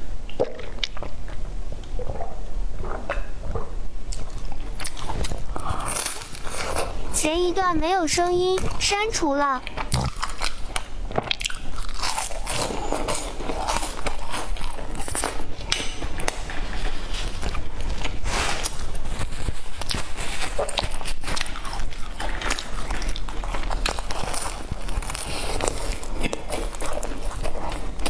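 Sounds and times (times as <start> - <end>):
crunching pastry while chewing: 4.1 - 7.2, 9.6 - 28.0.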